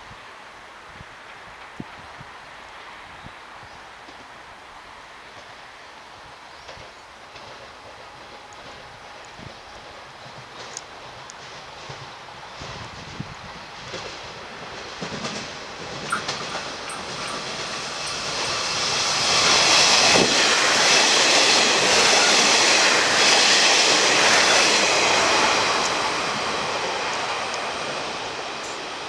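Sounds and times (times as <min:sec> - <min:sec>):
diesel train passing: 0:07.2 - 0:29.0.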